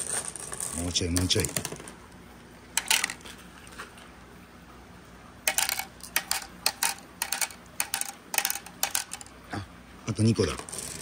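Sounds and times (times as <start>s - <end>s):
glass marbles clicking: 2.8s - 3.2s, 5.5s - 9.3s
marbles clinking into cup: 2.8s - 3.3s, 5.5s - 9.3s.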